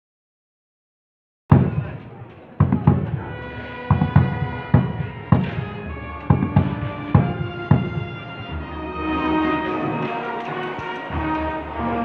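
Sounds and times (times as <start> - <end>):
large drum beaten with stick: 1.5 - 8.6.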